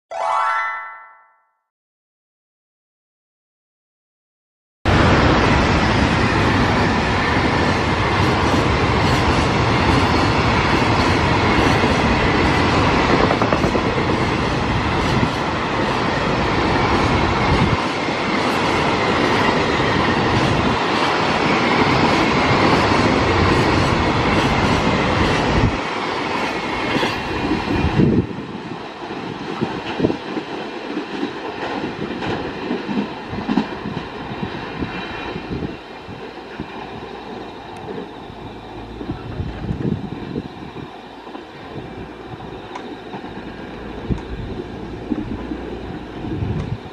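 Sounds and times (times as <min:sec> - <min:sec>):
freight train wheels rushing: 0:04.9 - 0:46.9
train wheels clacking on rails: 0:05.0 - 0:46.9.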